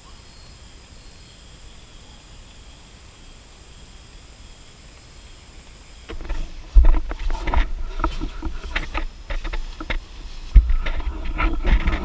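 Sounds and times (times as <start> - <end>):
nylon crinkling and rustling: 6.1 - 12.0.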